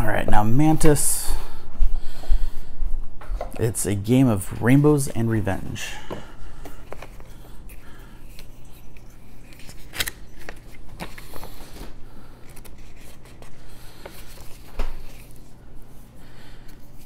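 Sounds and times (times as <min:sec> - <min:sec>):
paper pages rustling and turning: 0:06.6 - 0:17.0.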